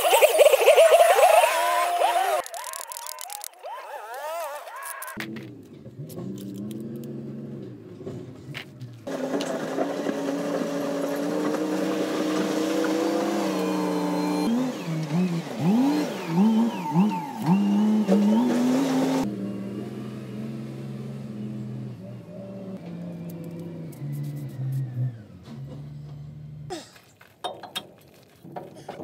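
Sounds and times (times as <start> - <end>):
engine revving: 5.2 - 26.7
low engine hum: 5.2 - 26.7.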